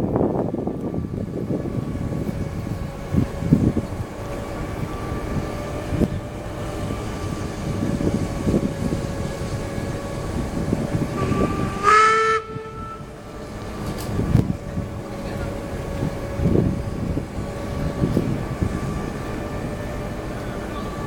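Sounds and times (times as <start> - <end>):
wind buffeting microphone: 0.0 - 21.0
steam locomotive whistle: 11.1 - 13.5.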